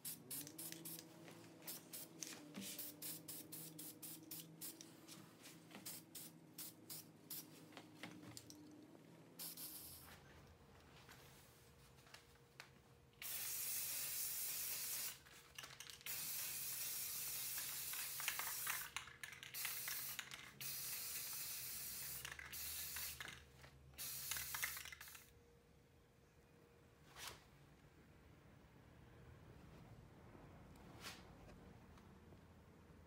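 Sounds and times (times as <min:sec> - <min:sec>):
spray paint can hissing: 0:00.0 - 0:01.0, 0:01.7 - 0:04.8, 0:05.8 - 0:07.5, 0:09.4 - 0:10.1, 0:13.2 - 0:23.4, 0:24.0 - 0:25.3.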